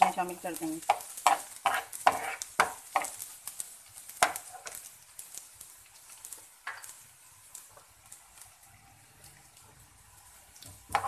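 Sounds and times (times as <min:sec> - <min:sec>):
onions sizzling in oil: 0:00.0 - 0:11.0
metal spoon scraping frying pan: 0:00.8 - 0:03.2.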